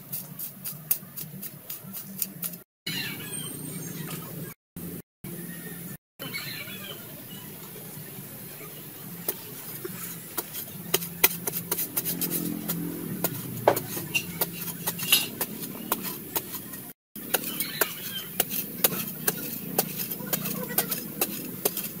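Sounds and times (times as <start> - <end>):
metal blade chopping dry soil: 0.0 - 2.6, 9.3 - 22.0.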